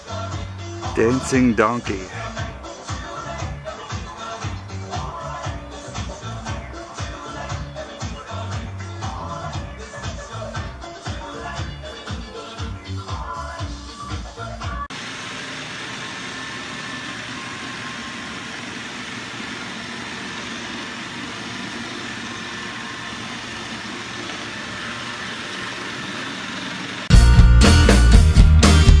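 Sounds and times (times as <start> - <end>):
loud music with drums and guitar: 0.0 - 14.9, 27.1 - 29.0
robot vacuum whirring: 14.9 - 27.1.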